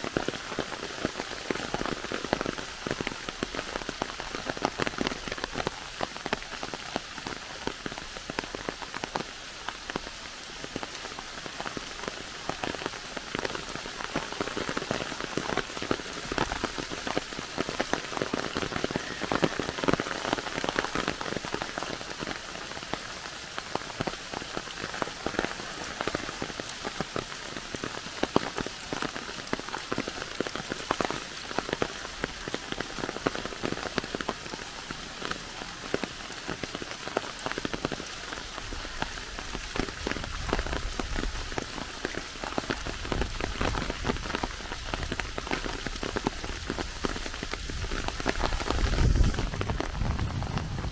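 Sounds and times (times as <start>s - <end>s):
raindrops ticking on leaves: 0.0s - 50.9s
steady rain hiss: 0.0s - 50.9s.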